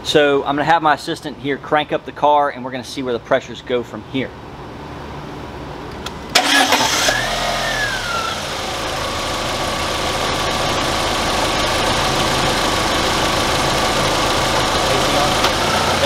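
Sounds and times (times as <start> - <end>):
car engine starting and idling: 6.0 - 16.0.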